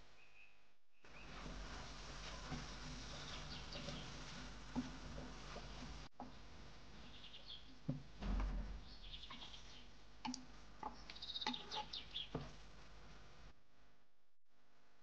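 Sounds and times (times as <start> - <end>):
wooden spatula scraping frying pan: 1.2 - 6.2.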